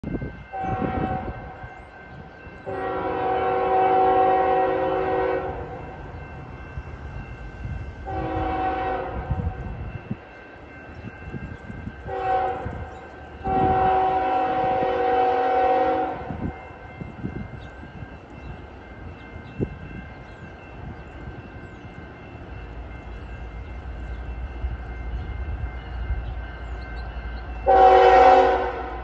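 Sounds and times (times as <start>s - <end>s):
train rumbling: 0.0s - 29.0s
locomotive air horn blasts: 0.5s - 1.6s, 2.6s - 5.9s, 8.0s - 9.5s, 12.0s - 16.5s, 27.6s - 29.0s.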